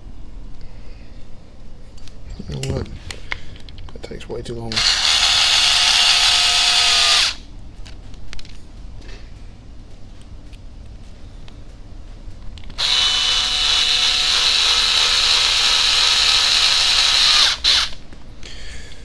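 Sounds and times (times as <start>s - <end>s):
cordless drill driving a screw: 4.7s - 7.4s, 12.8s - 18.0s.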